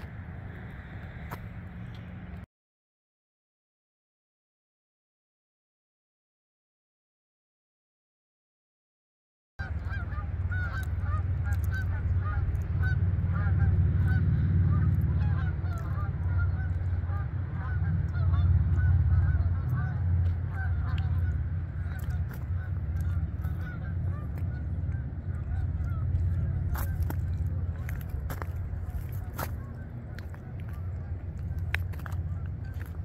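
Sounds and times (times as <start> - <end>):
low rumble: 0.0 - 2.5, 9.6 - 33.0
geese honking: 9.6 - 33.0.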